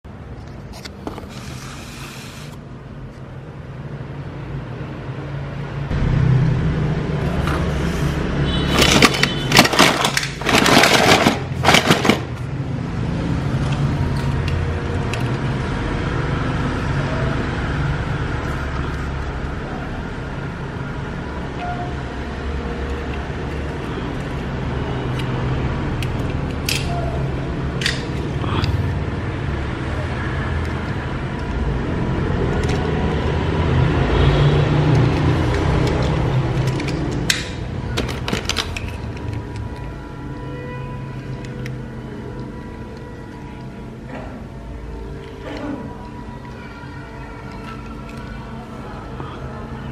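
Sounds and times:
toy vehicles clattering in box: 8.7s - 12.5s, 32.5s - 32.9s, 34.8s - 39.9s.

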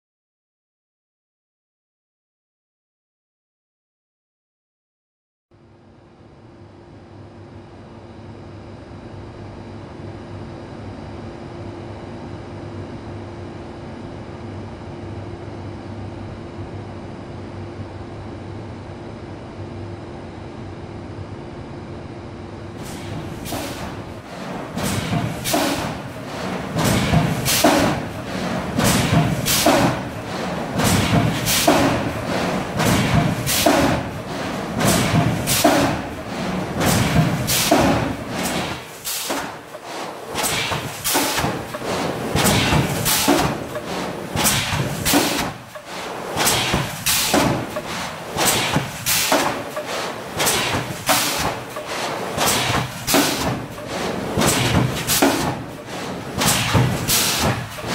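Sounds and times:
machine press thumping: 22.8s - 57.9s.

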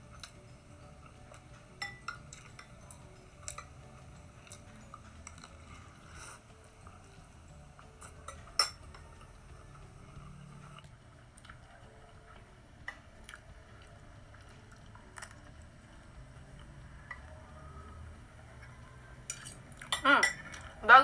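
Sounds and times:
cutlery clinking on glass bowl: 1.8s - 3.8s, 8.0s - 9.1s, 19.3s - 20.7s.

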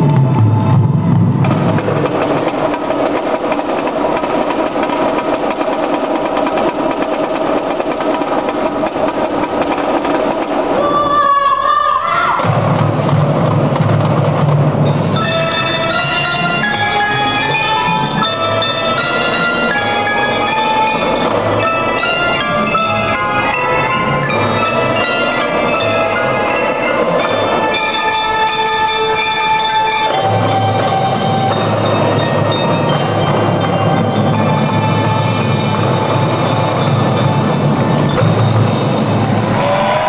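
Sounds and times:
deeper low layer: 0.0s - 3.7s
marimbas and xylophones playing: 14.7s - 39.9s.

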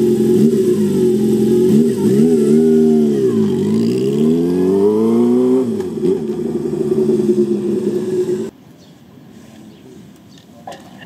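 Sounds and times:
motorcycle engine pulling away: 0.0s - 8.5s.

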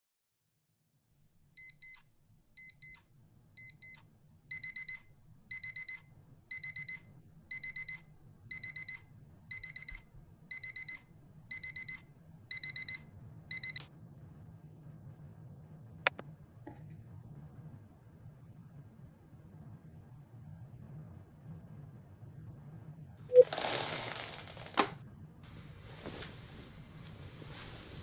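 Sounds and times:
alarm clock beeping: 3.6s - 13.8s.

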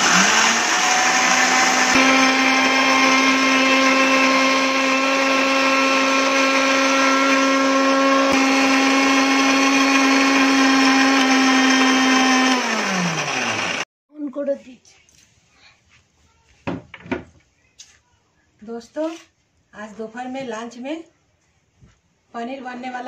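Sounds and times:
mixer grinder motor whine: 0.0s - 13.9s.

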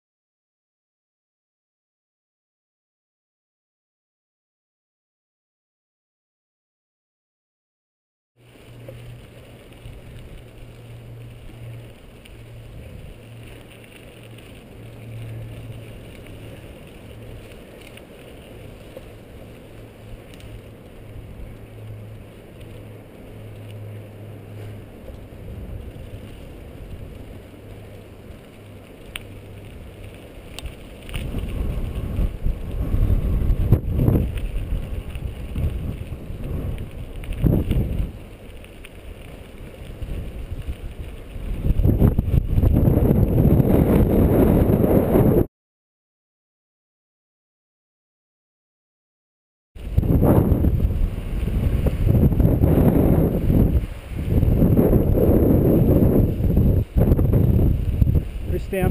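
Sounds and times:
bike rolling on dirt trail: 8.4s - 45.5s, 49.8s - 58.9s
low hum: 8.4s - 45.5s
wind buffeting microphone: 8.7s - 45.5s, 49.8s - 58.9s.

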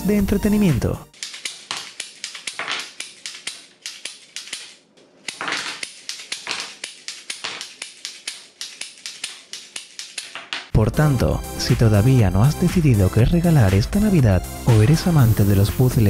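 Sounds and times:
wooden toy gun clicking: 1.1s - 10.7s.

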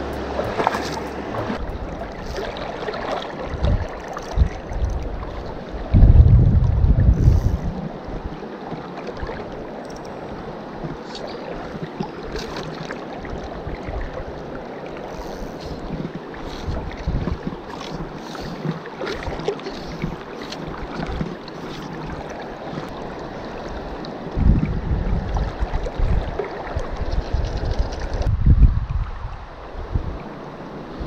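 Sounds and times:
wind buffeting microphone: 0.0s - 8.4s, 15.5s - 21.3s, 23.8s - 31.0s.

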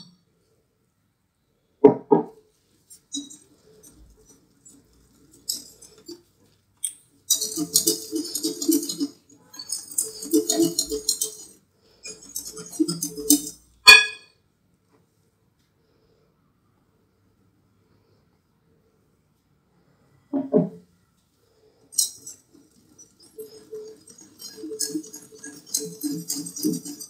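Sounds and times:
whisk beating batter in a bowl: 2.9s - 6.6s, 7.2s - 13.8s, 21.9s - 27.0s
ringing clink: 13.9s - 14.3s.

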